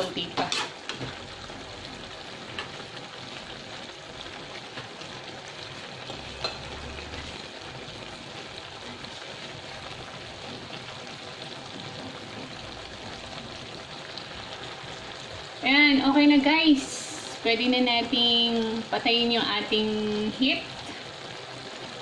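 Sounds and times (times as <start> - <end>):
stew boiling and sizzling: 0.0 - 22.0.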